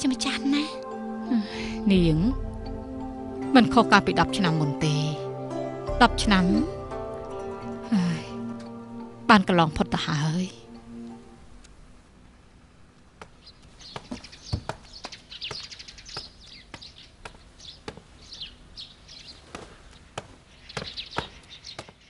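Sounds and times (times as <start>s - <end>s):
small birds chirping: 13.1s - 22.0s.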